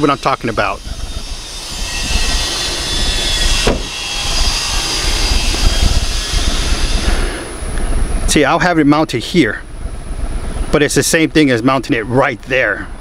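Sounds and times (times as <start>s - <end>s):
wind on microphone: 0.5s - 8.4s
car hatch thump: 3.6s - 3.9s.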